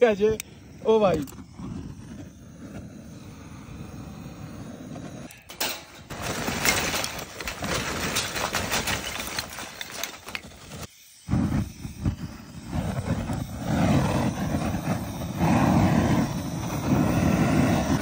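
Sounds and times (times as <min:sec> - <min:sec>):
blowtorch hissing: 0:00.0 - 0:18.0
charcoal clattering onto grate: 0:05.4 - 0:10.8.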